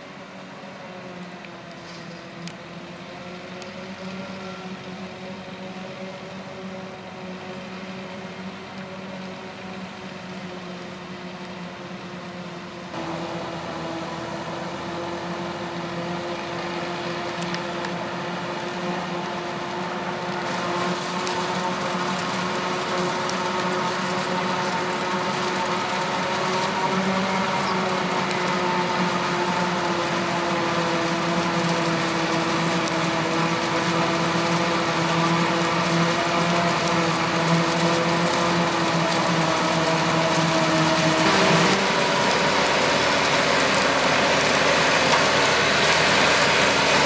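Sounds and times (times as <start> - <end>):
tractor running: 0.0 - 47.0
forage harvester chopping: 13.0 - 47.0.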